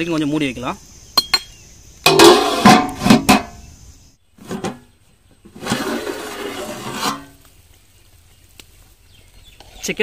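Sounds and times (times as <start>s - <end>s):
metal lid clanking on pot: 2.1s - 3.6s.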